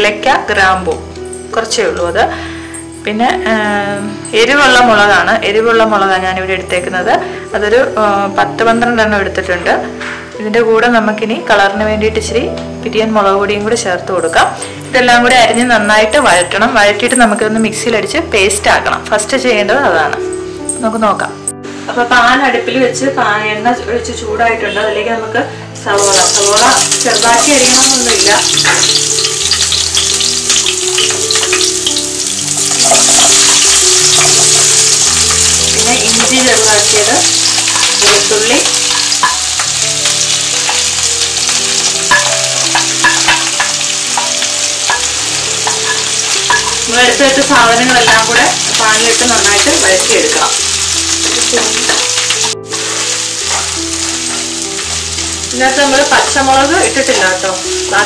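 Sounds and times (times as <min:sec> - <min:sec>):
onions sizzling in oil: 0:24.7 - 0:58.0.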